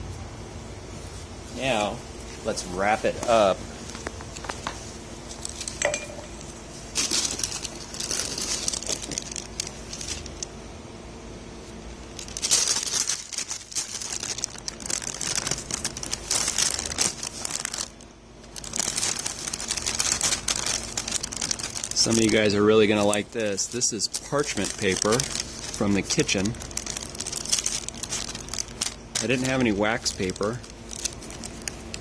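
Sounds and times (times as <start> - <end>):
parchment paper crinkling: 6.7 - 10.5, 12.1 - 32.0.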